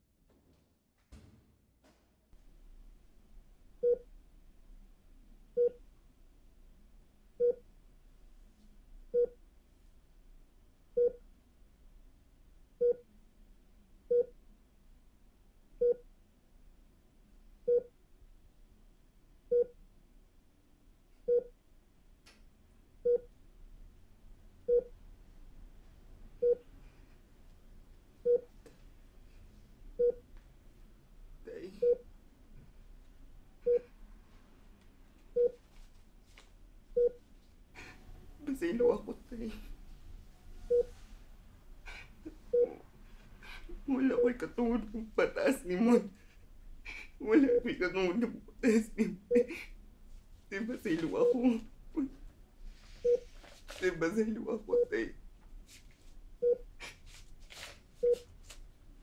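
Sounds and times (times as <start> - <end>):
faint low room hum: 0.0 - 59.0
heart monitor beeping: 3.8 - 4.1, 5.6 - 5.8, 7.4 - 7.6, 9.1 - 9.4, 11.0 - 11.2, 12.8 - 13.1, 14.1 - 14.4, 15.8 - 16.0, 17.7 - 17.9, 19.5 - 19.8, 21.3 - 21.6, 23.0 - 23.4, 24.7 - 24.9, 26.4 - 26.7, 28.2 - 28.5, 30.0 - 30.3, 31.8 - 32.1, 33.6 - 33.9, 35.3 - 35.6, 37.0 - 37.2, 40.7 - 41.0, 42.5 - 42.8, 53.0 - 53.3, 56.4 - 56.7, 58.0 - 58.3.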